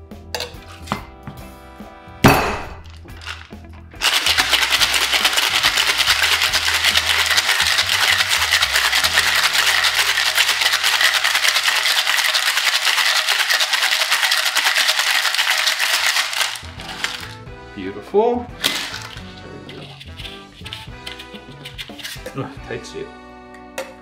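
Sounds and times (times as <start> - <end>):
ice rattling in cocktail shaker: 2.8 - 17.4, 18.6 - 22.6.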